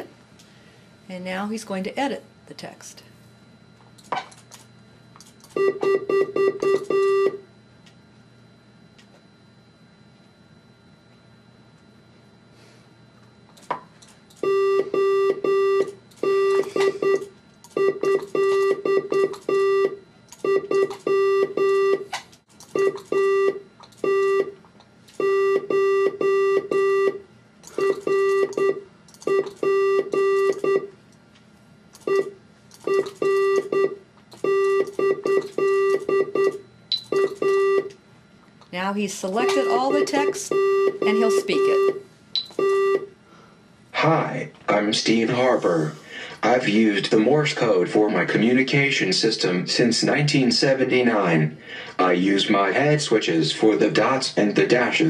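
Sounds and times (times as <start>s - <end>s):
morse code beeps: 5.5s - 7.4s, 14.4s - 22.1s, 22.7s - 24.6s, 25.2s - 30.9s, 32.0s - 37.9s, 39.2s - 43.1s.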